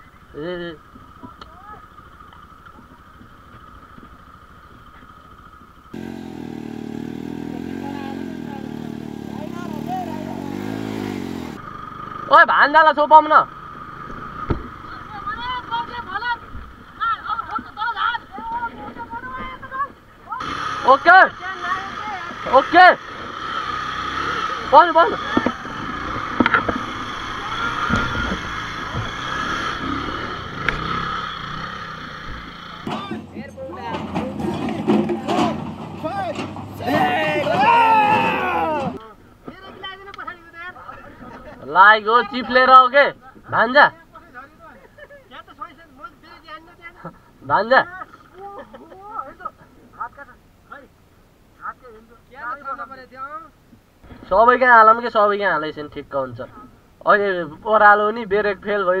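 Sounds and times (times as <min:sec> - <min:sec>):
distant motorcycle rumble: 0:00.0 - 0:40.3
motorcycle engine revving in mud: 0:05.9 - 0:12.3, 0:20.4 - 0:32.9.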